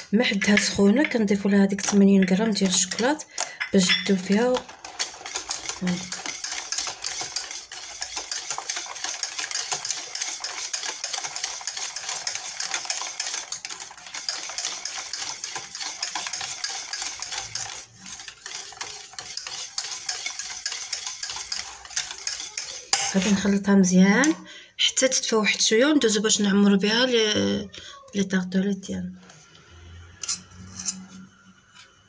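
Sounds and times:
whisk scraping metal saucepan: 0:00.4 - 0:23.7.

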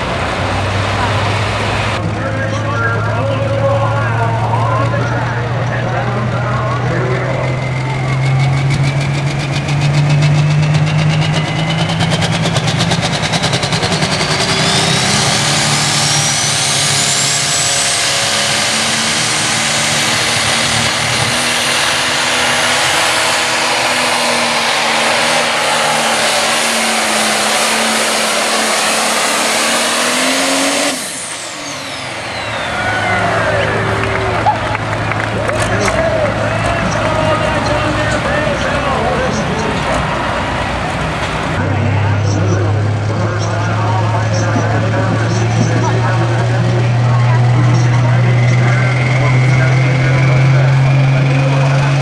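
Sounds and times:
diesel tractor engine under load: 0:00.0 - 0:52.0
turbo whine: 0:01.8 - 0:34.6.

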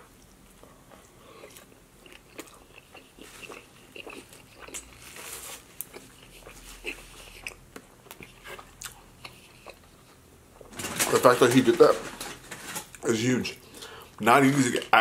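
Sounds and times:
man chewing food: 0:00.0 - 0:10.7.

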